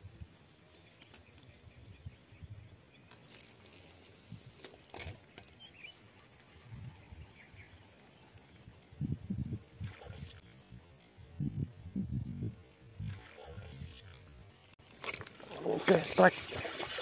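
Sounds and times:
small clicks: 0.6s - 1.9s
wind rumbling on microphone: 6.2s - 14.6s.

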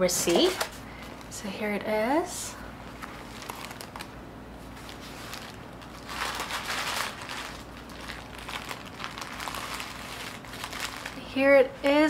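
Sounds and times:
paper packaging rustling: 0.2s - 0.8s, 2.8s - 11.3s.

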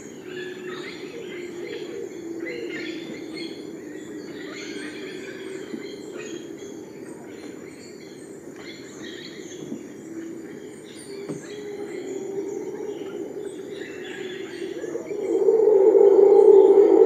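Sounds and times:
birds chirping and calling: 0.0s - 17.0s
low droning animal sound: 11.5s - 17.0s
high-pitched insect drone: 12.5s - 17.0s.

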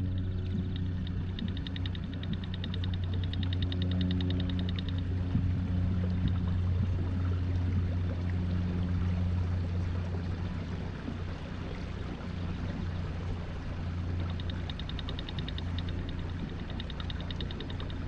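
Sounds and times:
rapid even ticking: 0.0s - 5.1s, 14.0s - 18.0s
outboard motor humming: 0.0s - 18.0s
water washing past hull: 0.0s - 18.0s.

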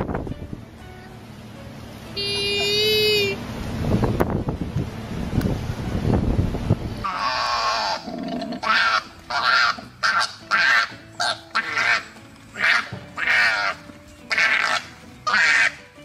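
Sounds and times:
koalas screaming: 7.0s - 15.8s.

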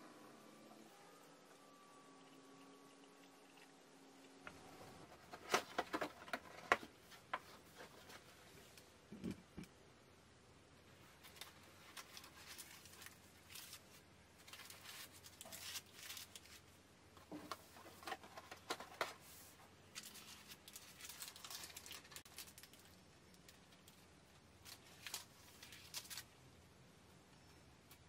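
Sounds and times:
paper liners crinkling: 11.2s - 16.8s, 17.6s - 24.0s, 24.6s - 26.4s.

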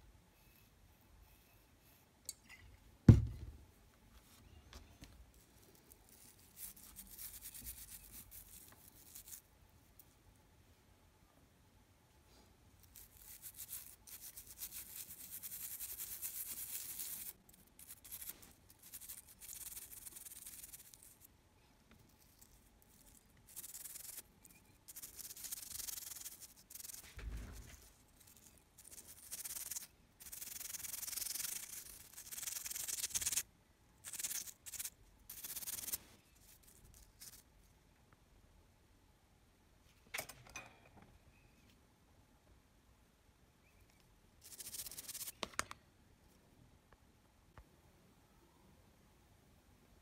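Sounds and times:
toothbrush scrubbing circuit board: 13.0s - 21.2s, 23.4s - 27.0s, 28.8s - 33.4s, 34.0s - 36.0s.

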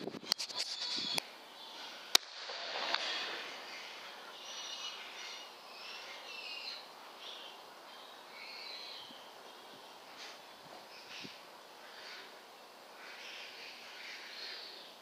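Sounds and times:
steady hiss: 0.0s - 15.0s
sharp crack: 2.1s - 3.3s.

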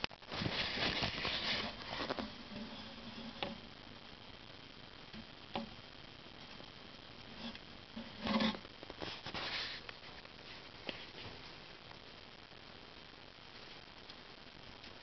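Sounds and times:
mouse rustling in bedding: 0.2s - 3.6s, 7.3s - 11.5s.

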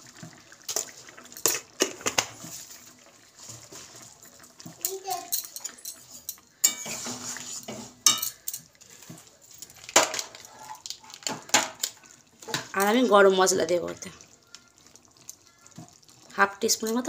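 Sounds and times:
metal spatula stirring curry: 6.0s - 9.4s
spatula clanking on pan: 6.6s - 8.6s.

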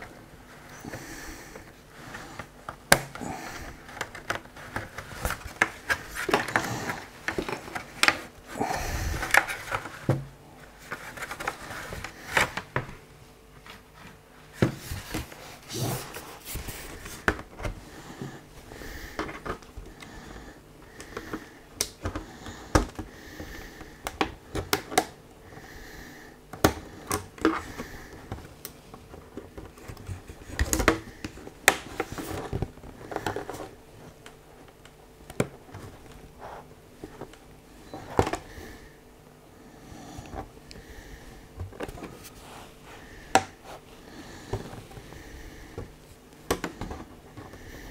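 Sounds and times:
plastic clicking and snapping: 24.0s - 25.2s.

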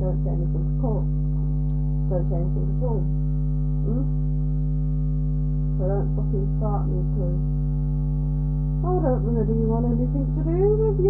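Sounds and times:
woman speaking: 0.0s - 1.1s, 2.1s - 3.1s, 3.9s - 4.2s, 5.8s - 7.4s, 8.8s - 11.0s
electrical mains hum: 0.0s - 11.0s.

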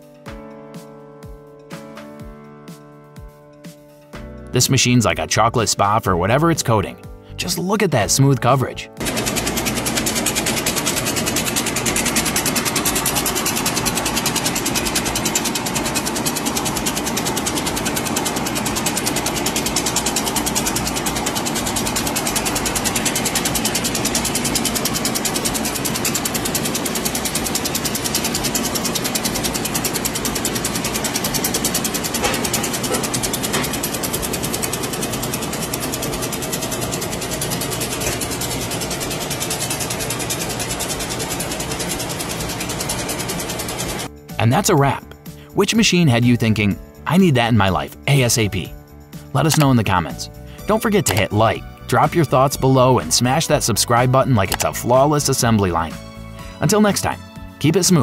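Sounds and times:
conveyor machine ticking: 9.0s - 45.1s.

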